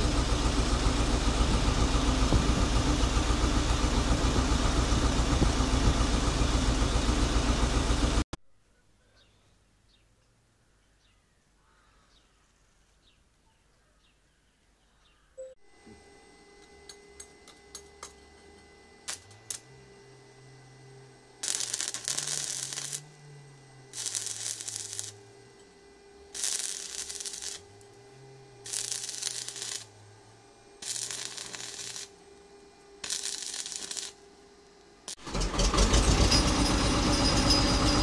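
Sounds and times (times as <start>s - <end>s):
steady hum: 0.0s - 8.2s, 15.4s - 35.2s
welding arc crackling: 0.0s - 8.2s, 19.0s - 19.7s, 21.4s - 25.6s, 26.3s - 28.0s, 28.6s - 30.0s, 30.8s - 32.2s, 33.0s - 38.0s.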